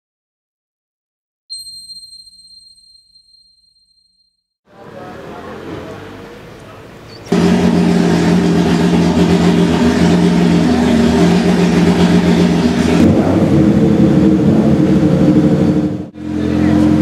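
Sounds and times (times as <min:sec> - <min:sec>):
racing engine idling: 0:04.7 - 0:17.0.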